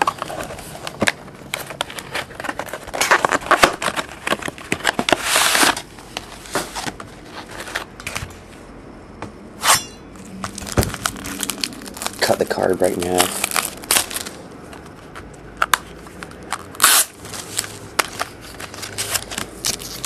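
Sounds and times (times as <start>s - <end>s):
wrapping rustling and crinkling: 0.0s - 8.2s, 10.4s - 20.0s
wrapping tearing rip: 10.6s - 14.4s, 16.5s - 20.0s.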